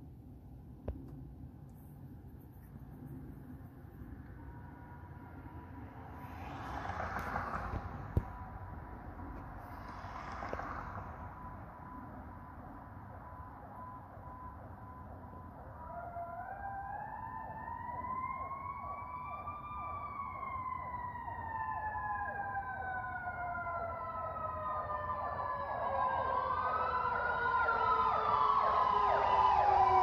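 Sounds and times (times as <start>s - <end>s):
siren wail: 10.4s - 30.0s
siren rapid yelp: 11.3s - 30.0s.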